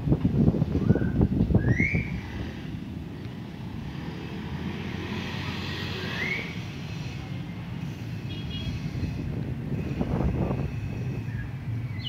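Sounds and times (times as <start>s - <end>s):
wind buffeting microphone: 0.0s - 3.1s, 8.6s - 12.0s.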